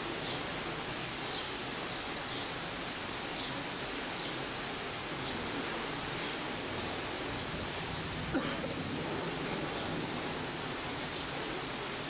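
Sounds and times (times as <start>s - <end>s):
steady rushing background noise: 0.0s - 12.0s.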